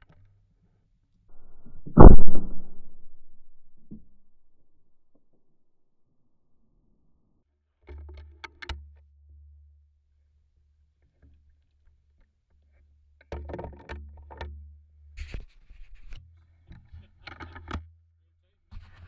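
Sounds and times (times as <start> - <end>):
low wind rumble: 1.4 - 5.0.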